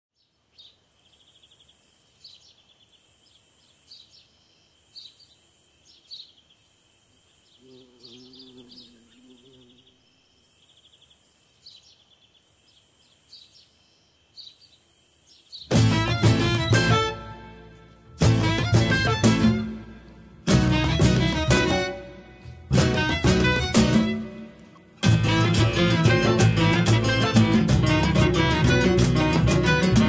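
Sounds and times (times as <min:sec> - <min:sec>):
birds chirping and trilling: 0:00.2 - 0:15.9
insects buzzing in pulses: 0:02.9 - 0:15.7.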